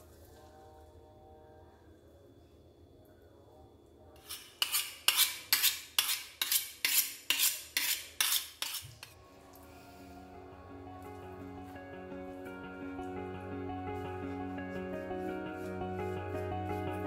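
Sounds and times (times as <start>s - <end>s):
knife being sharpened: 4.2s - 9.2s.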